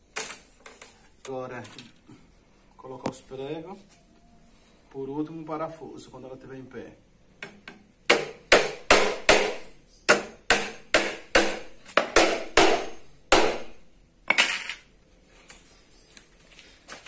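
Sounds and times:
hammer driving nails into wood: 7.4 - 13.8.

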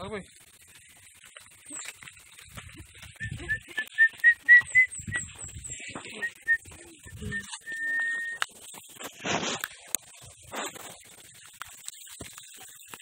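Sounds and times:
person whistling short notes: 3.2 - 5.3, 6.2 - 8.4.

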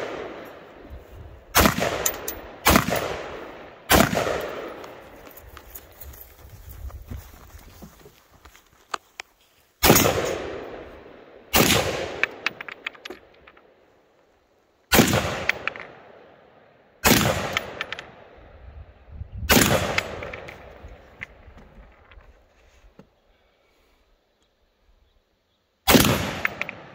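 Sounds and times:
rifle shots echoing: 0.0 - 0.7, 1.5 - 5.1, 9.8 - 13.1, 14.9 - 16.3, 17.0 - 18.4, 19.5 - 20.8, 25.9 - 26.9.

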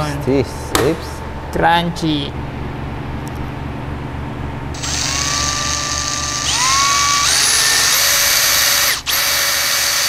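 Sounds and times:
cordless drill whining: 4.8 - 10.0.

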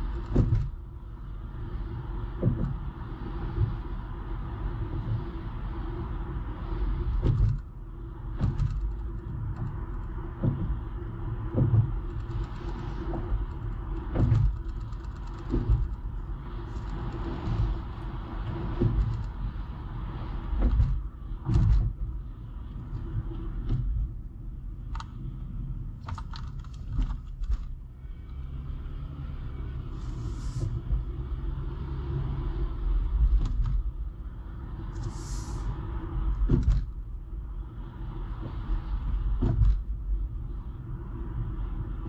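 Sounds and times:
tyre and engine rumble: 0.0 - 42.0
brief hisses: 35.0 - 35.7.

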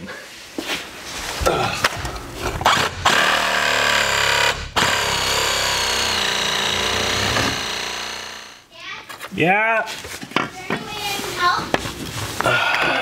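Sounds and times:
demolition hammer hammering concrete: 2.6 - 8.6.

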